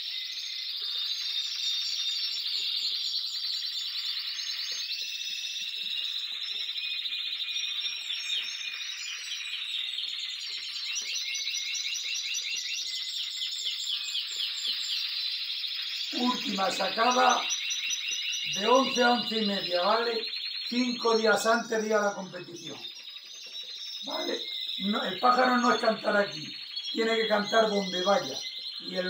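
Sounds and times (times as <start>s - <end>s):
canaries singing trills: 0.0s - 29.0s.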